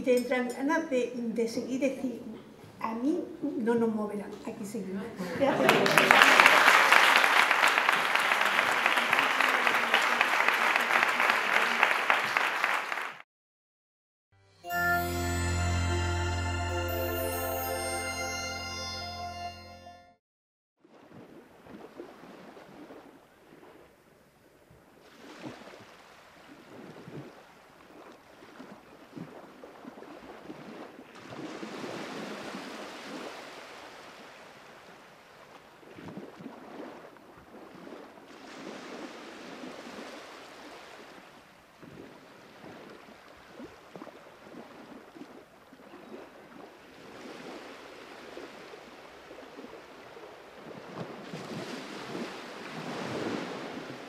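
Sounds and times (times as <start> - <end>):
sea waves washing in: 28.0 - 45.4, 46.5 - 54.0.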